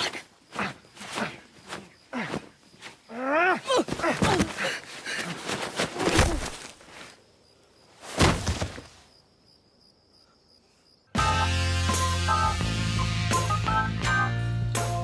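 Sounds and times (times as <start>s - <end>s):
crickets chirping: 0.0s - 11.7s
scuffling: 3.6s - 7.2s
body falling heavy thump: 3.8s - 4.6s, 5.8s - 6.7s, 8.1s - 9.0s
organ music: 11.2s - 15.0s.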